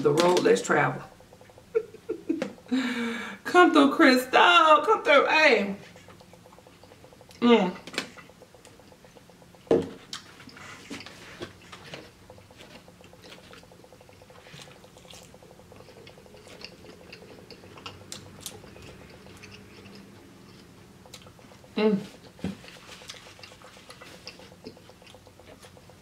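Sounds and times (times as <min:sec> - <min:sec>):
person chewing food: 0:05.8 - 0:26.0.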